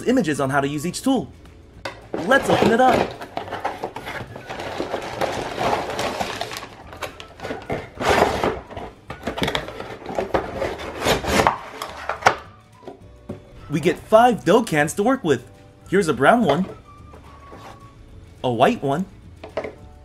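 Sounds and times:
plastic bags rustling: 2.2s - 12.2s
cardboard scraping: 2.2s - 12.4s, 17.2s - 17.9s.

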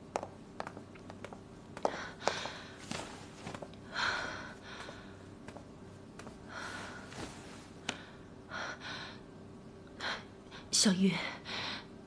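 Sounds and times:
flip-flop footsteps on tiles: 0.1s - 3.7s, 4.8s - 6.4s.

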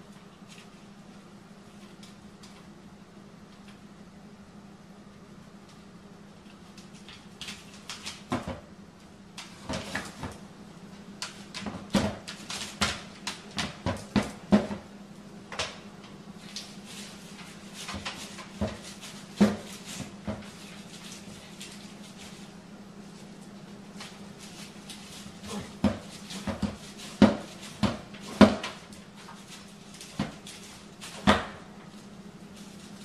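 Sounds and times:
steady low hum: 0.0s - 33.0s
dog pawing at plastic trash bin: 11.2s - 14.9s, 16.4s - 22.4s, 23.9s - 31.9s.

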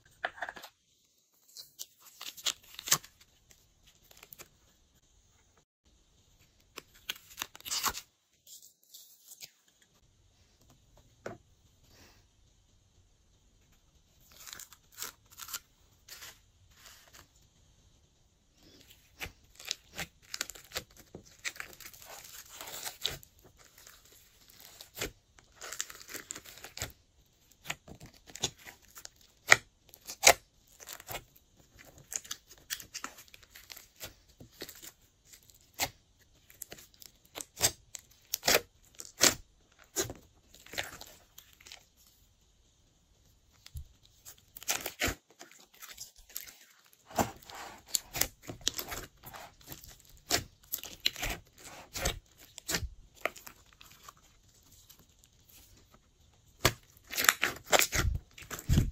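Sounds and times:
slime popping and crackling: 43.6s - 54.6s, 56.4s - 58.9s.

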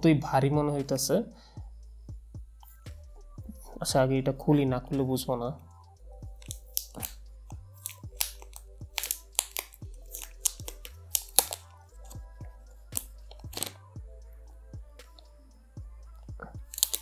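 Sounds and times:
plastic film peeling and crinkling: 7.8s - 11.7s, 13.0s - 13.8s, 16.7s - 17.0s.

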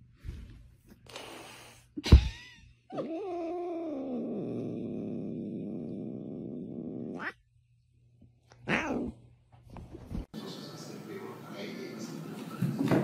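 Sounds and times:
cat crying: 7.1s - 7.4s, 8.6s - 9.1s
cat yowling: 7.1s - 7.4s, 8.6s - 9.1s.

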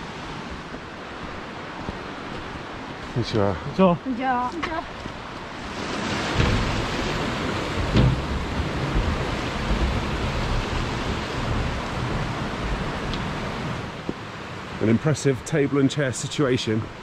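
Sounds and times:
stream rushing over rocks: 0.0s - 17.0s
low microphone rumble: 6.4s - 14.2s.

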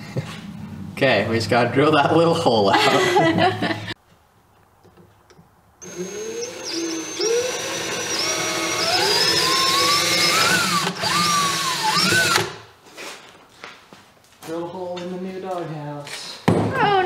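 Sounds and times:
cordless drill boring wood: 5.8s - 12.6s.

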